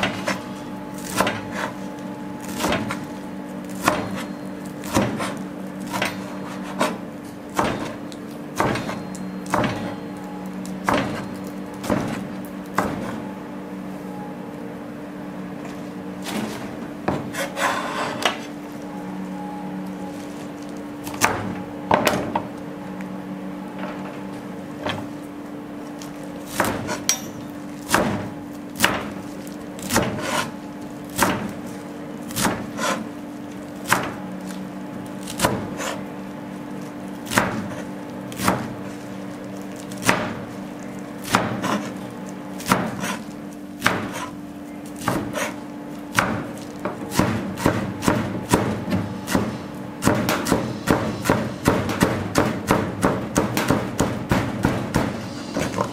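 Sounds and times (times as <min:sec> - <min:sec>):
steady low hum: 0:00.0 - 0:55.9
knife chopping on cutting board: 0:17.1 - 0:18.4, 0:32.3 - 0:33.0, 0:41.2 - 0:41.9, 0:42.6 - 0:44.4, 0:45.0 - 0:55.9.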